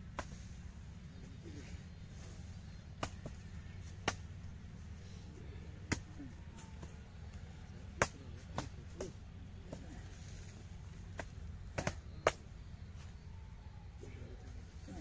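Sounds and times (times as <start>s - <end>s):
hoes striking packed earth: 0.0s - 0.7s, 2.2s - 4.6s, 5.8s - 7.0s, 7.9s - 10.4s, 11.0s - 12.5s
steady low rumble: 0.0s - 15.0s.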